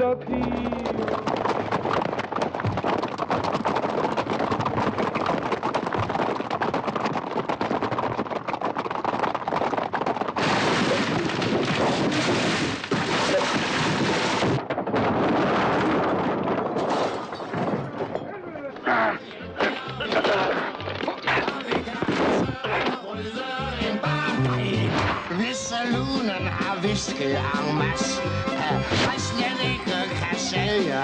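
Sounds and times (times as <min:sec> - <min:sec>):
wagon clattering over rough ground: 0:00.0 - 0:22.7
horses galloping: 0:00.0 - 0:31.0.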